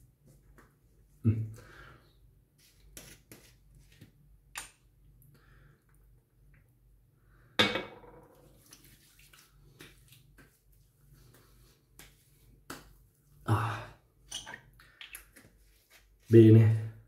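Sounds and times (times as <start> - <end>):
light pats on skin: 2.6 - 4.7, 8.6 - 13.2
hand slapping wet skin: 2.9 - 4.8, 8.6 - 13.1.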